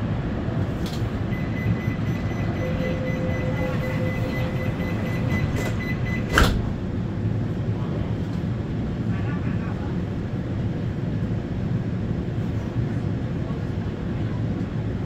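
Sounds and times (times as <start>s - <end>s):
train carriage low hum: 0.0s - 15.0s
high warning tone: 1.2s - 6.4s
sliding doors thumping shut: 5.2s - 6.8s.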